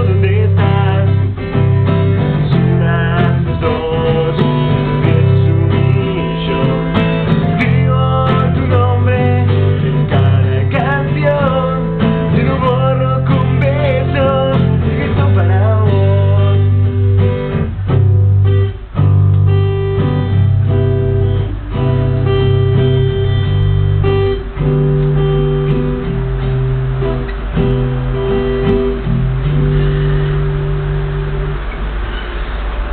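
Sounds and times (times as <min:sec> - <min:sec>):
man singing: 0:00.0 - 0:16.9
acoustic guitar strumming: 0:00.0 - 0:32.9.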